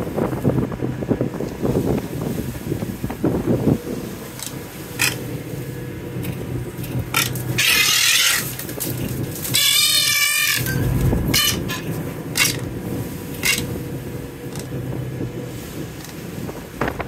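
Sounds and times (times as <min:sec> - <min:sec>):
ship engine droning: 0:00.0 - 0:17.0
seabird squawk: 0:07.2 - 0:08.6, 0:09.5 - 0:12.6.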